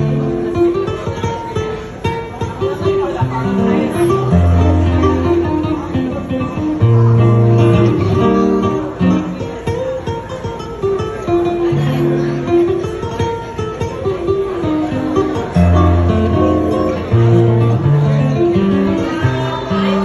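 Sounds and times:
acoustic guitar playing: 0.0 - 20.0.

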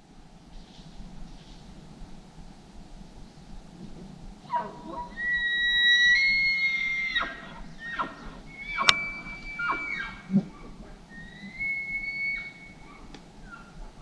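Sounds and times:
elk bugling: 4.4 - 13.8.

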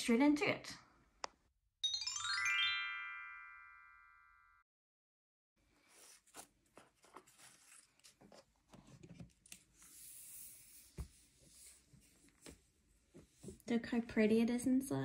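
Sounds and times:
cardboard cover sliding: 5.8 - 12.5.

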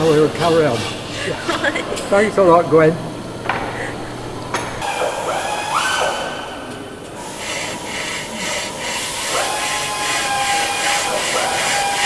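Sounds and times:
hacksaw cutting metal: 7.2 - 12.0.

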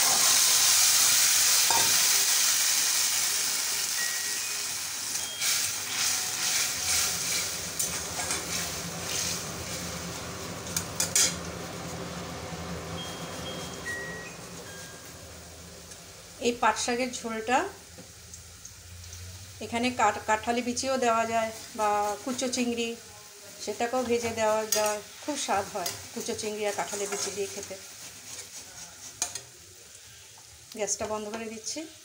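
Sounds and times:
leaves sizzling in hot oil: 0.0 - 32.0
metal spatula scraping pan: 5.4 - 9.3, 10.7 - 11.4, 24.2 - 29.5.

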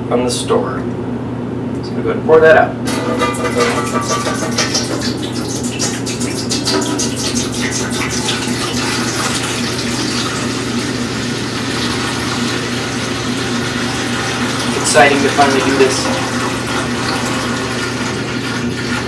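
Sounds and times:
water glugging from jug: 2.9 - 19.0.

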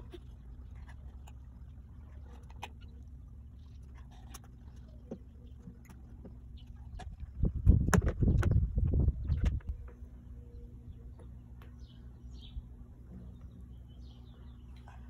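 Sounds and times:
low outdoor hum: 0.0 - 15.0
low thumps and rumbles: 3.2 - 10.2.

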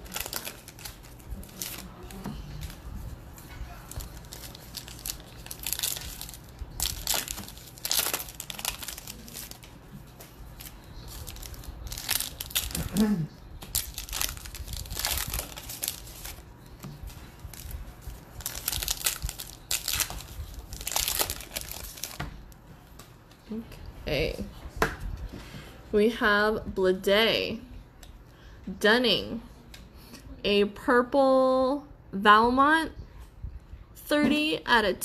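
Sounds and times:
foil wrapper tearing and crinkling: 0.0 - 2.8, 3.8 - 9.8, 10.6 - 16.5, 17.4 - 22.3.

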